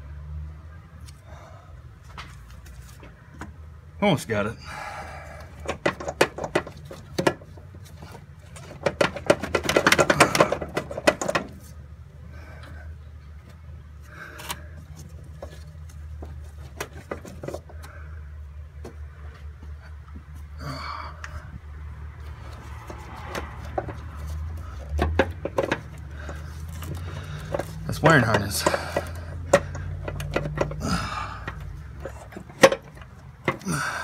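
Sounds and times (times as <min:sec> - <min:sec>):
metal parts clicking and rattling: 0:05.5 - 0:11.8, 0:22.4 - 0:34.0
small knocks: 0:05.6 - 0:11.7, 0:22.7 - 0:33.7.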